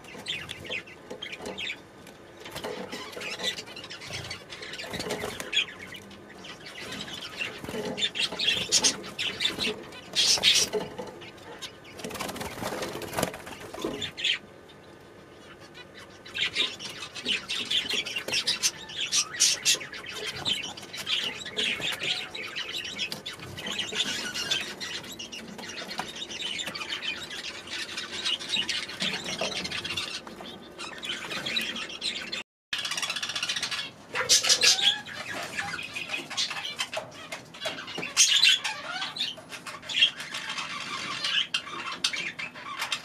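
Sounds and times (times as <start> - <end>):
small birds chirping: 0.0 - 43.0
wings flapping: 12.0 - 14.1.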